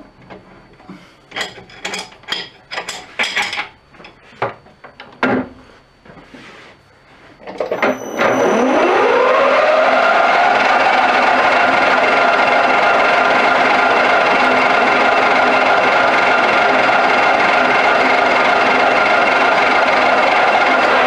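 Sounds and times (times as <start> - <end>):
metal lathe whining: 7.5 - 21.0.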